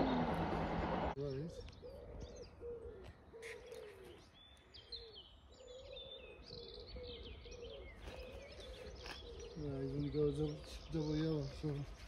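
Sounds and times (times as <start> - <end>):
small birds chirping: 0.0 - 12.0
pigeon cooing: 1.5 - 4.3.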